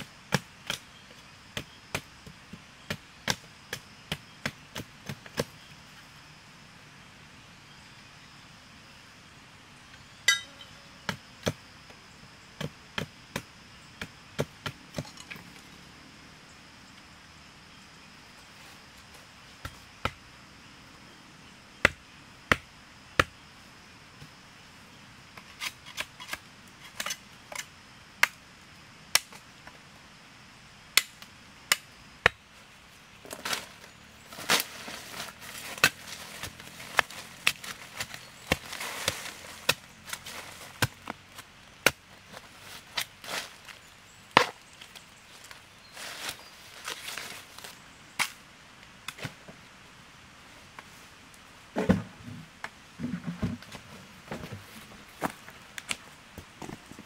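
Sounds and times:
rustling of dry leaves: 32.4 - 51.7
blade chopping bamboo: 35.5 - 41.2.

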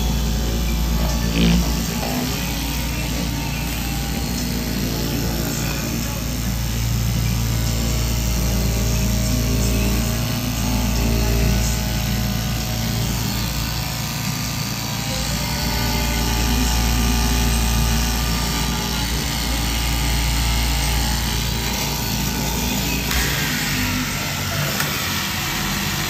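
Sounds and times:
low motor hum: 0.0 - 26.0
reciprocating blade cutting: 0.0 - 26.0.

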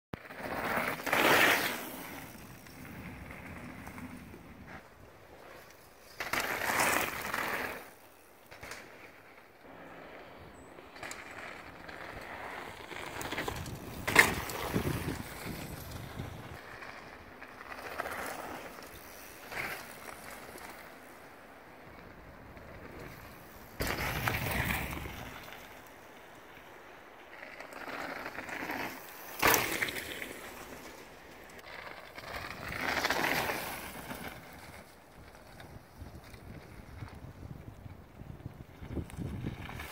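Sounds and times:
bike tyres rolling on dirt and gravel: 0.2 - 39.9.

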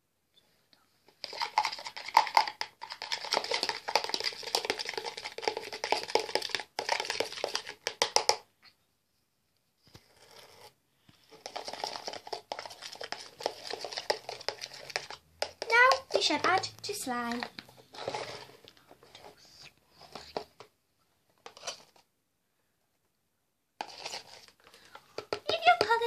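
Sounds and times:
spoon stirring sticky foam: 1.1 - 8.5, 9.9 - 20.6, 23.8 - 26.0.

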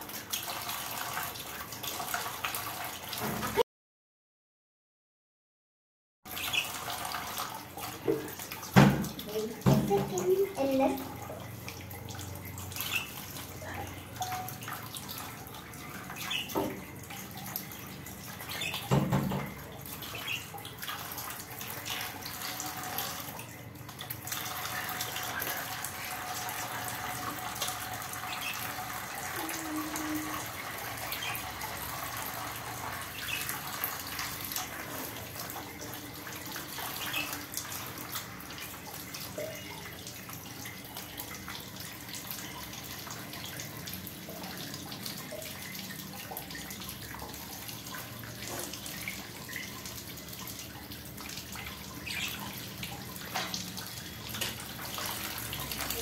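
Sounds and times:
knocks: 18.9 - 19.6.

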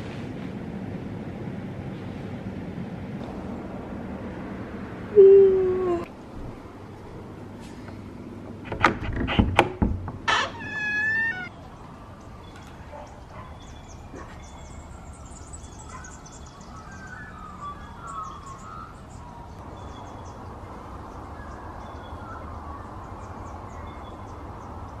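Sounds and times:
low outdoor rumble: 0.0 - 16.7
wild birds chirping: 10.3 - 25.0.

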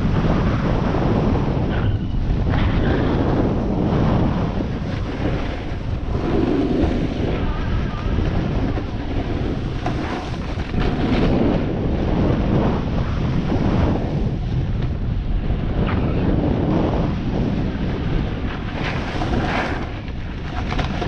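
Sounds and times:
wind buffeting microphone: 0.0 - 21.0
skis scraping on packed snow: 3.1 - 11.6, 17.5 - 21.0.

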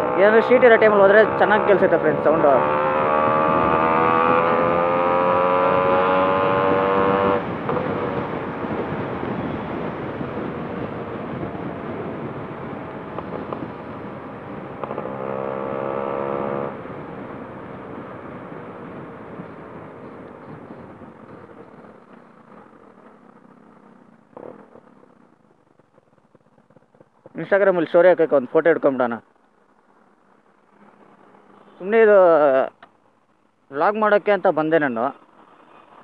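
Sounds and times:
motorcycle engine accelerating: 0.0 - 27.1.

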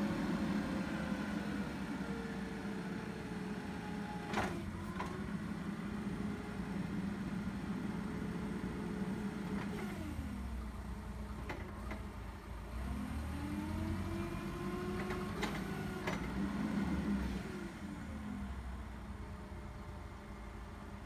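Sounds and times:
forklift engine revving: 12.6 - 18.1.

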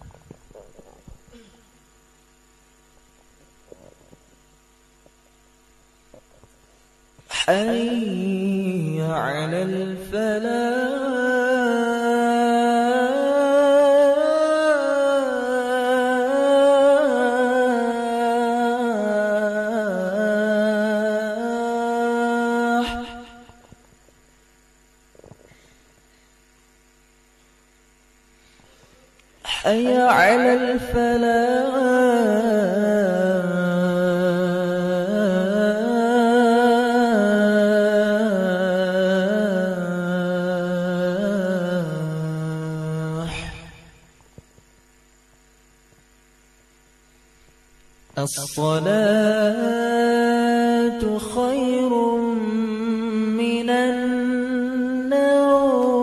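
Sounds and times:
faint steady hum: 0.0 - 56.0
call to prayer echoes: 7.3 - 23.7, 29.4 - 44.1, 48.1 - 56.0.

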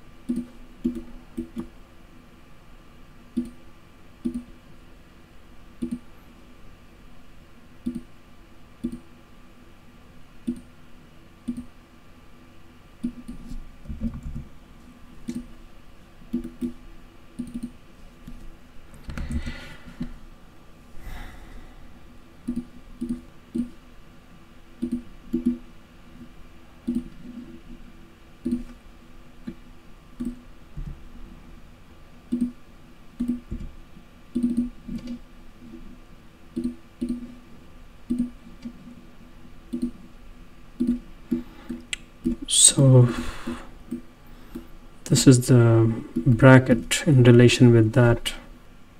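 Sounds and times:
faint steady hum: 0.0 - 48.9
computer mouse buttons clicking: 0.2 - 1.7, 3.4 - 3.6, 4.2 - 4.5, 5.8 - 6.1, 7.8 - 8.1, 8.8 - 9.1, 10.4 - 10.7, 11.4 - 11.7, 16.3 - 16.8, 17.4 - 18.4, 22.4 - 23.8, 24.8 - 25.6, 26.8 - 27.2, 28.4 - 28.8, 30.2 - 30.4, 32.3 - 32.6, 33.2 - 33.6, 34.3 - 35.2, 36.5 - 37.3, 38.1 - 38.8, 39.7 - 40.0, 40.8 - 42.4.

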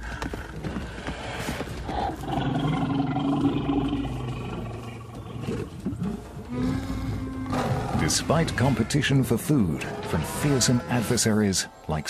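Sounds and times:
big cat growling: 2.0 - 8.8.

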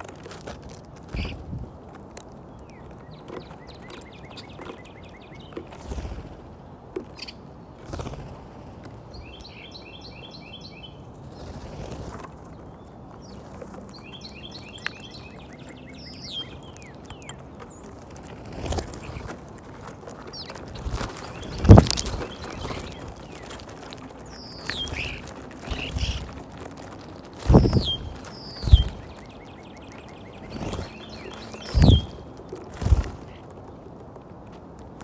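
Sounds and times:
birds tapping at peanuts: 0.0 - 35.0
wingbeats and scuffling: 0.0 - 35.0
songbird trilling: 13.2 - 17.9, 20.3 - 26.3, 27.4 - 32.3.

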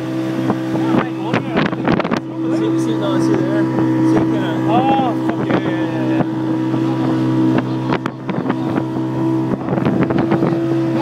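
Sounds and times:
motorboat engine running: 0.0 - 11.0.

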